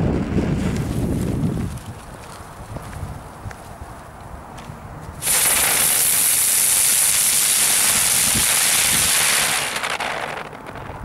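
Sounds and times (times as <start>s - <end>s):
firework spraying sparks hissing: 5.2s - 10.7s.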